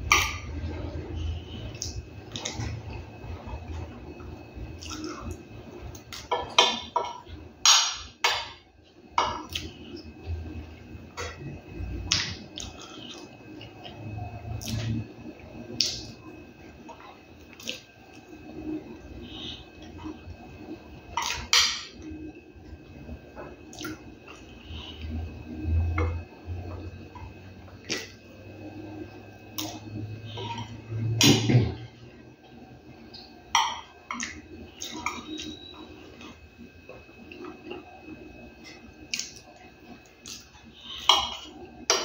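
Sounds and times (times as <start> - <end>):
man chewing food: 8.8 - 20.4, 32.4 - 42.0.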